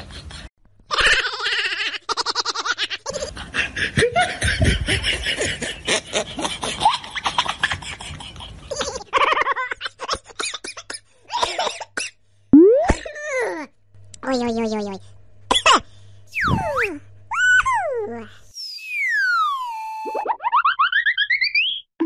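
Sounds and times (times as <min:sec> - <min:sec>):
people laughing: 0:03.1 - 0:10.4.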